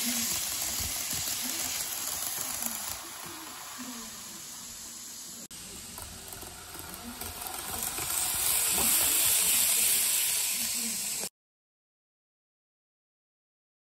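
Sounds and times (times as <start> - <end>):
small electric motor whirring: 0.0 - 5.0, 5.7 - 11.3
model train wheels on rails: 0.0 - 11.3.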